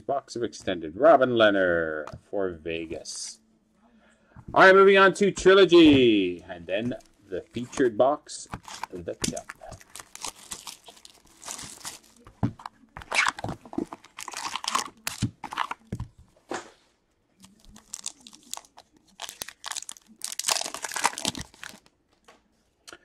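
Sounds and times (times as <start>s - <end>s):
cellophane and cardboard crinkling: 6.7s - 16.2s, 17.4s - 21.9s
foil pack crinkling and tearing: 8.4s - 12.4s, 13.0s - 15.9s, 17.4s - 21.9s.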